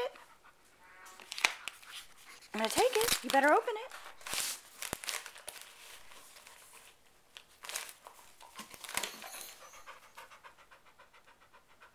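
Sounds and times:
dog panting: 0.0 - 0.8, 1.6 - 2.8, 8.1 - 11.9
wrapping paper crinkling: 1.2 - 9.6.

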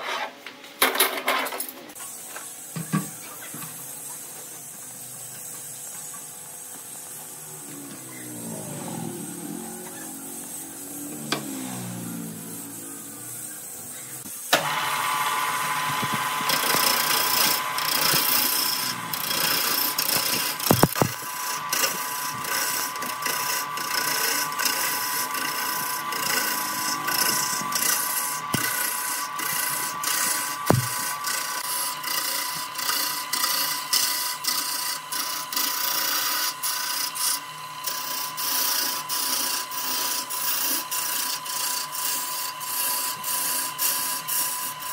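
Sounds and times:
lathe tool cutting wood: 6.7 - 44.9
sharp knocks: 30.7 - 31.0.

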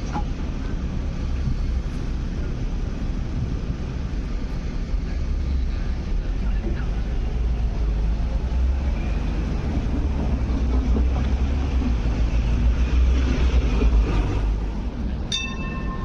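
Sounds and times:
light rail vehicle rumbling: 0.0 - 16.0
sharp metallic ding: 15.3 - 16.0.

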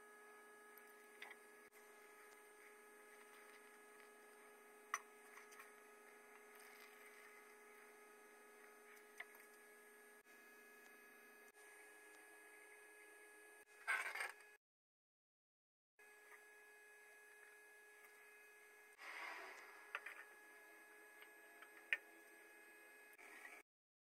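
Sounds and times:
faint electrical hum: 0.0 - 13.7.

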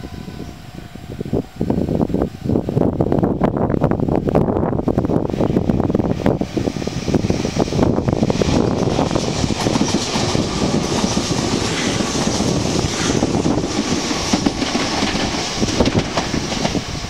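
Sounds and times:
train running through station: 0.0 - 17.0
wheels clicking over rail joints: 9.2 - 16.8.

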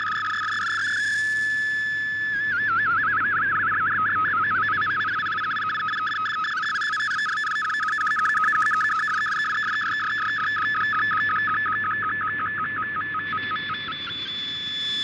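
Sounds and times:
warbling radio data signal: 0.0 - 3.8, 4.5 - 11.1.

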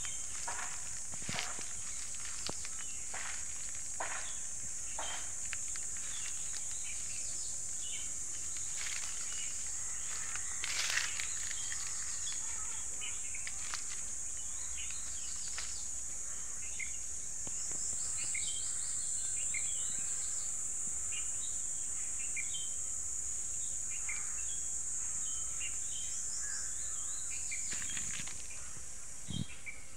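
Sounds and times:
small birds chirping: 0.0 - 19.7
insects droning: 0.0 - 29.9.

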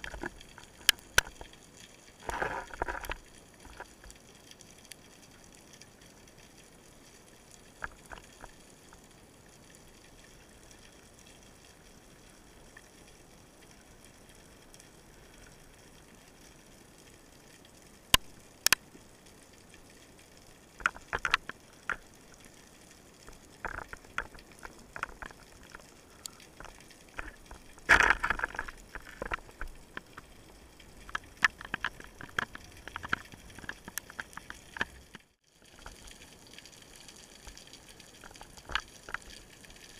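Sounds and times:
faint underwater hiss: 0.0 - 34.2
underwater crackling: 0.0 - 39.9
sharp clicks and knocks: 20.8 - 22.0.

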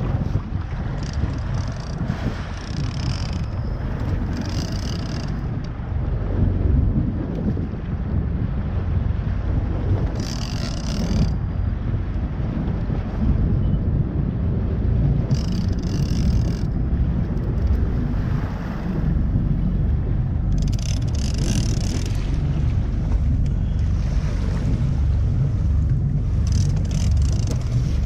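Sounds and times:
wind buffeting microphone: 0.0 - 28.0.

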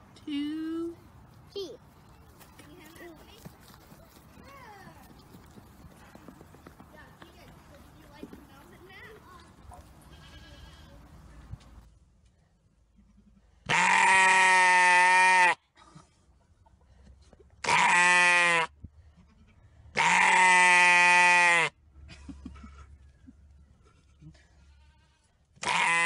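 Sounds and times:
sheep bleating: 10.0 - 11.0, 13.7 - 15.6, 17.6 - 18.7, 20.0 - 21.7, 24.6 - 26.0.

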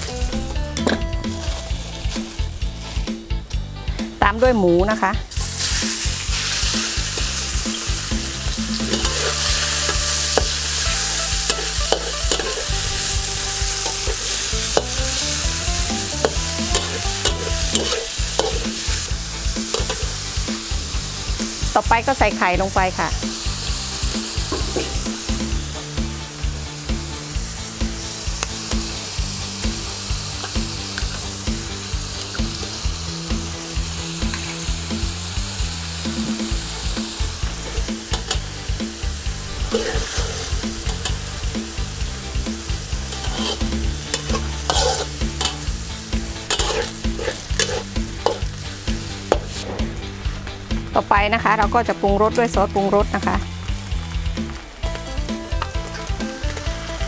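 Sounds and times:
eggs sizzling in a pan: 0.0 - 4.2, 5.0 - 57.0
spatula scraping a pan: 8.7 - 15.0, 16.0 - 20.2, 39.4 - 41.3, 43.0 - 45.7, 46.3 - 48.6.

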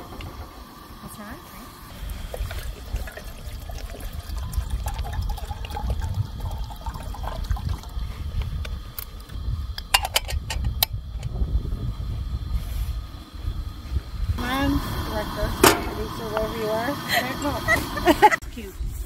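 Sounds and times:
low rumble: 0.0 - 18.3
water poured into kettle: 1.8 - 8.8
kettle lid clicks: 15.6 - 16.5.

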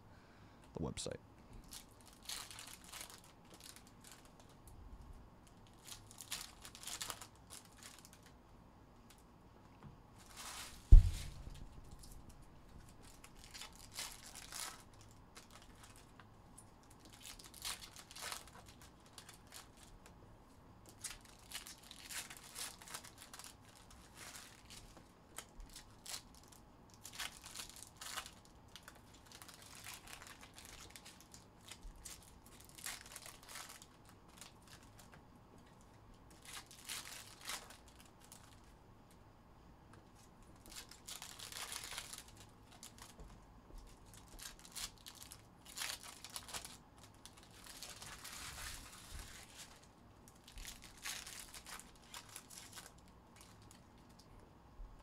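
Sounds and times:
foil wrappers tearing and crinkling: 1.7 - 4.5, 5.4 - 8.4, 10.2 - 16.2, 16.8 - 20.1, 20.8 - 35.2, 36.3 - 38.7, 40.6 - 43.2, 44.0 - 53.8
loud thump: 10.9 - 11.6.

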